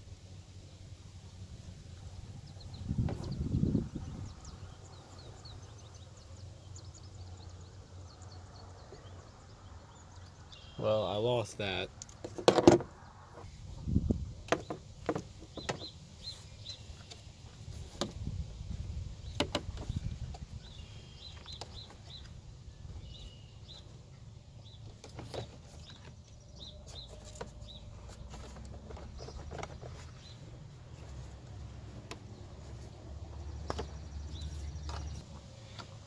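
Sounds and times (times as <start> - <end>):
small birds chirping: 0.6 - 36.0
wind rumble on microphone: 1.6 - 5.8, 13.4 - 14.5, 17.6 - 21.3.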